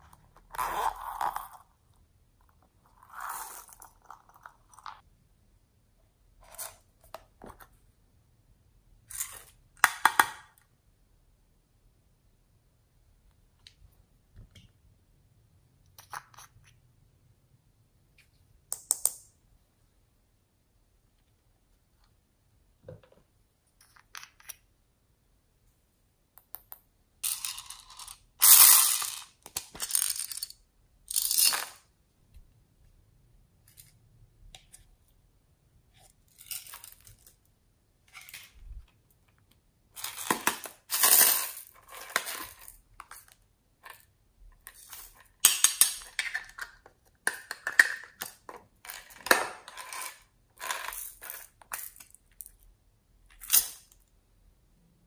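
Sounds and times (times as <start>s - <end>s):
tiny beads rattling into plastic bowl: 27.2s - 31.8s.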